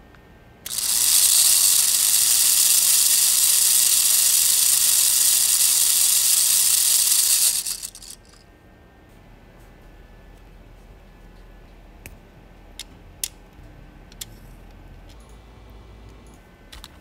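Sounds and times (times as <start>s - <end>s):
plastic gears whirring: 0.7s - 8.4s.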